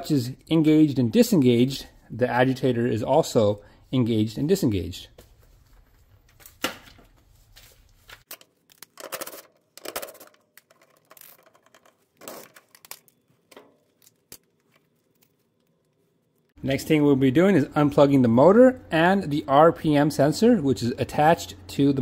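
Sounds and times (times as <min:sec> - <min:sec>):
plastic parts clicking and scraping: 0:08.2 - 0:16.6.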